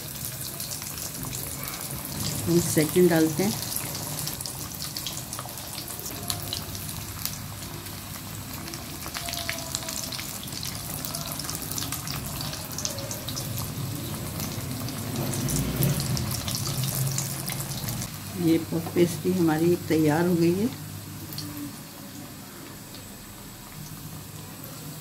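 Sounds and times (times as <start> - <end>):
hot oil sizzling and popping: 0.0 - 25.0.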